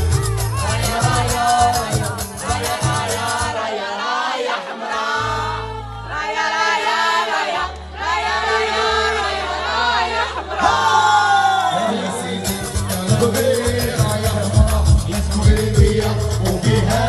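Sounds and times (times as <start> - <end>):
held bass notes: 0.0 - 3.5, 7.6 - 17.0
voices singing: 0.0 - 17.0.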